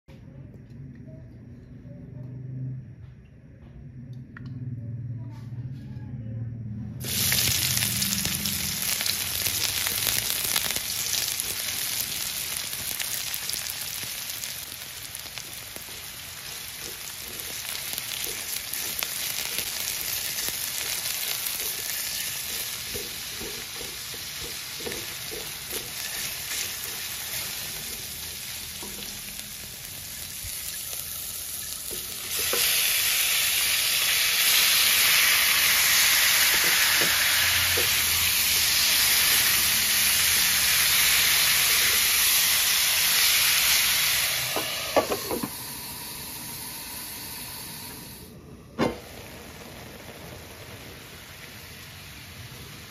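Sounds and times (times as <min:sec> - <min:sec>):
meat sizzling loudly: 0:07.0 - 0:48.3, 0:48.9 - 0:52.9
onion sizzling in oil: 0:07.0 - 0:52.9
spatula stirring in a wok: 0:07.2 - 0:45.6.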